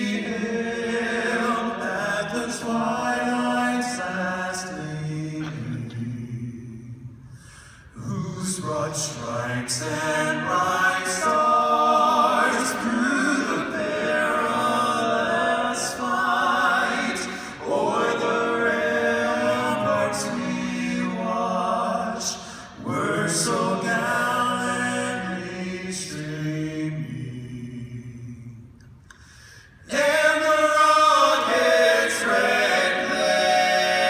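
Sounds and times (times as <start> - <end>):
male vocal group singing a cappella: 0.0 - 7.2, 7.9 - 34.0.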